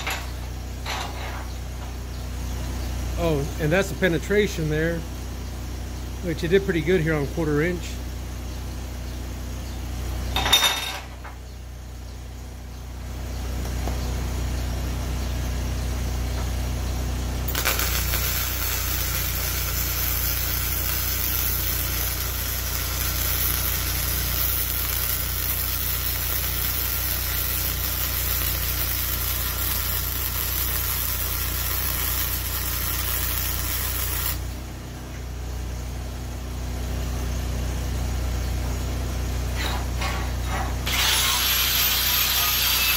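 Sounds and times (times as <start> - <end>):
welding arc crackling hiss: 3.1 - 5.0, 17.4 - 35.3, 39.4 - 42.9
generator humming: 11.2 - 42.9.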